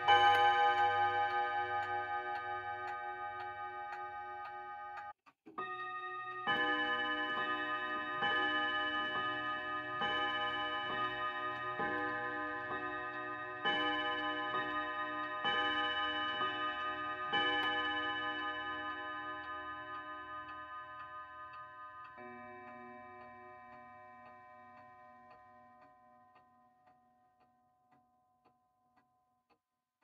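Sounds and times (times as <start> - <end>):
clock gong striking: 0.0 - 5.0
clock ticking: 0.0 - 29.6.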